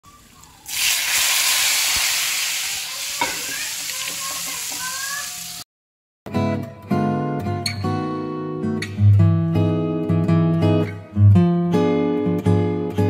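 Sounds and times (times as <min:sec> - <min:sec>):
hot oil sizzling: 0:00.1 - 0:05.7.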